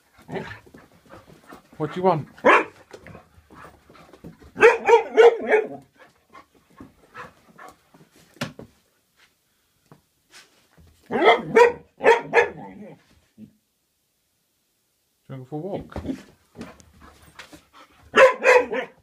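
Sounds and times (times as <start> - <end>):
dog barking excitedly: 0.2 - 1.3, 1.9 - 3.7, 4.5 - 6.1, 11.1 - 13.0, 18.1 - 19.0.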